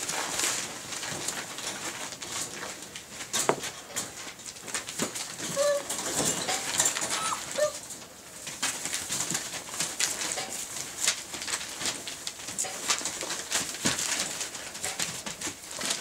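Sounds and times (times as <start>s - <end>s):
puppies whimpering and squeaking: 5.4s - 7.9s
newspaper rustling: 8.4s - 16.0s.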